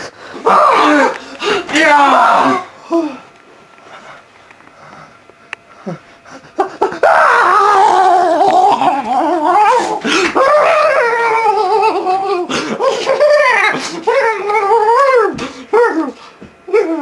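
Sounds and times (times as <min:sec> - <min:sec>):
man howling and wailing: 0:00.4 - 0:03.2, 0:06.8 - 0:17.0.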